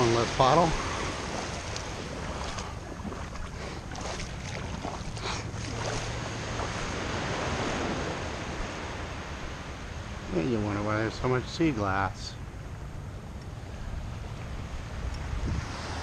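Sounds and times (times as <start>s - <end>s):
feet splashing in shallow water: 0.0s - 7.3s
small waves washing on shore: 0.0s - 16.0s
wind on microphone: 13.6s - 16.0s.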